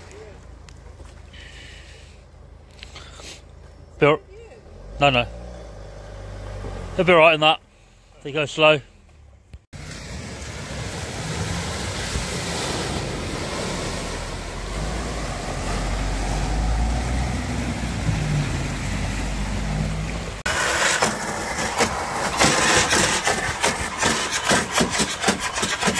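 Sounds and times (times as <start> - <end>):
low engine rumble: 0.0 - 25.9
water rushing around car wheels: 9.8 - 25.9
water spattering onto engine: 20.1 - 25.9.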